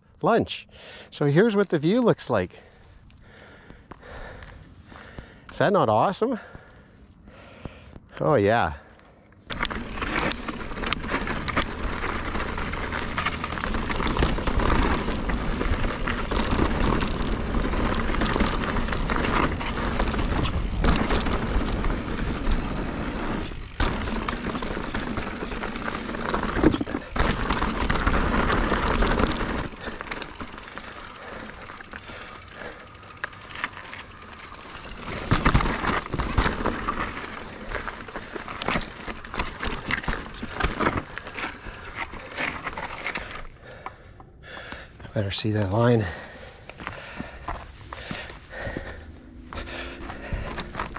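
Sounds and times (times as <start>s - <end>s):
bike rattling over rocks: 9.5s - 43.9s, 44.6s - 50.9s
tyre noise on dirt: 9.5s - 50.9s.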